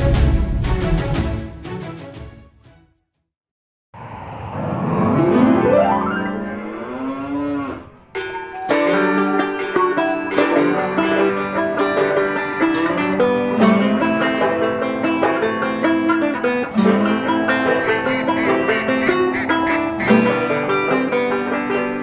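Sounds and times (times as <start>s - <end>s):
plucked-string music: 8.1s - 22.0s.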